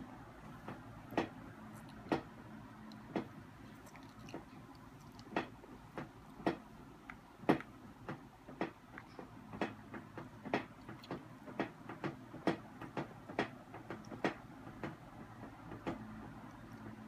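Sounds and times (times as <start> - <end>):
toddler chewing: 1.6 - 7.7.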